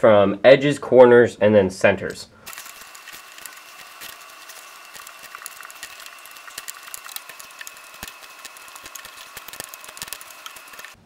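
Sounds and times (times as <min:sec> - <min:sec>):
plastic puzzle pieces clicking: 0:02.5 - 0:11.0.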